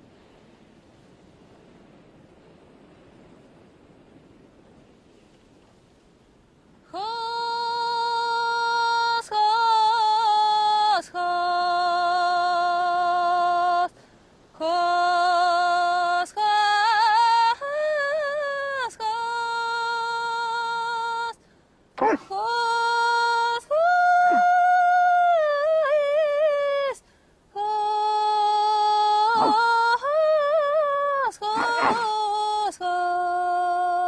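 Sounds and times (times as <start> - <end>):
faint airy hiss: 0.0 - 34.0
woman singing slow melody: 6.8 - 34.0.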